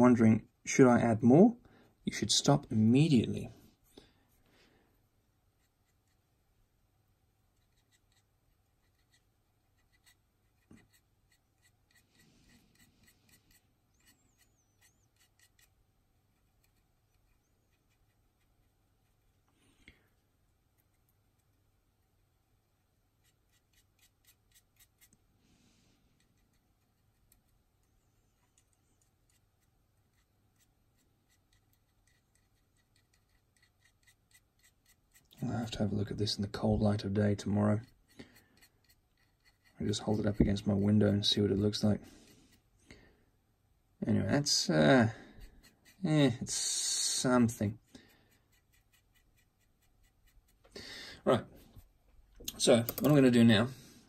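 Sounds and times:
paintbrush ticks and rubbing: 5.5 - 6.3, 7.4 - 19.4, 20.6 - 25.2, 26.1 - 42.7, 44.4 - 50.8.

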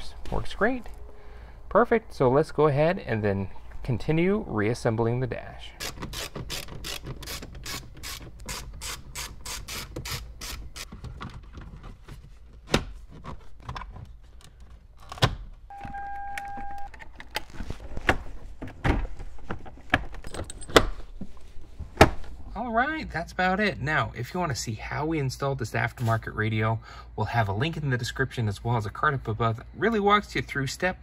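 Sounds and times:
steady beep: 15.7 - 16.9.

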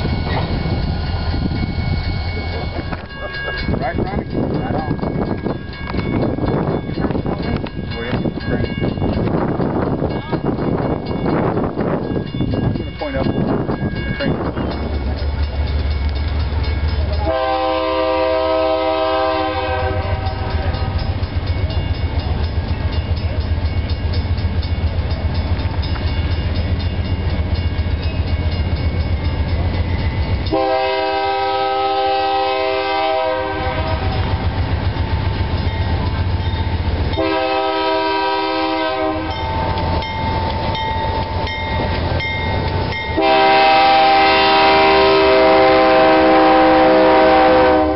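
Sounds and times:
locomotive air horn blasts: 17.2 - 21.0, 30.5 - 34.2, 37.2 - 39.4, 43.2 - 47.9.

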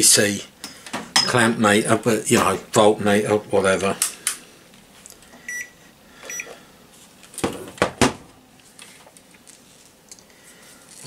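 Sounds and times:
clamp meter beeping: 5.4 - 5.7, 6.3 - 6.5.

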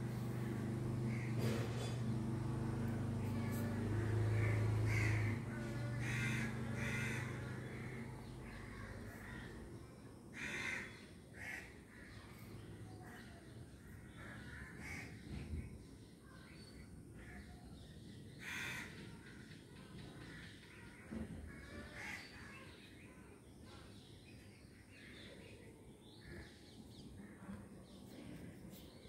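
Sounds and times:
low steady hum: 0.0 - 10.5
crows cawing: 2.8 - 9.6, 10.3 - 12.3, 14.0 - 15.2, 18.4 - 19.3, 20.2 - 22.7.

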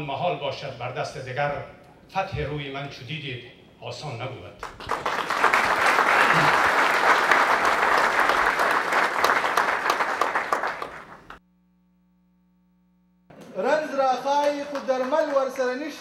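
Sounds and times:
faint hum: 0.0 - 14.0
audience applauding: 4.6 - 11.4, 13.6 - 16.0.

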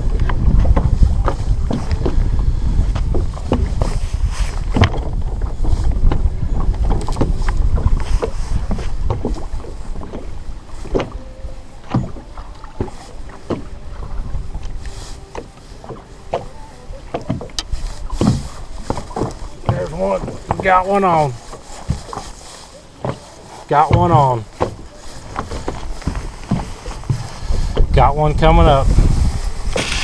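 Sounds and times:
small waves lapping against hull: 0.0 - 30.0
wind rumbling on microphone: 0.0 - 30.0.

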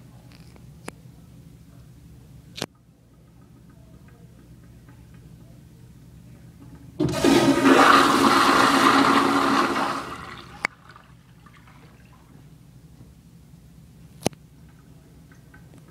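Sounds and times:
toilet flushing: 7.0 - 12.3.

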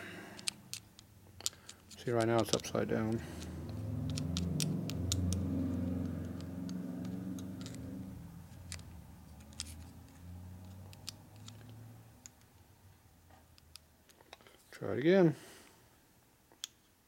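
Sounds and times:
low droning hum: 2.7 - 10.3.

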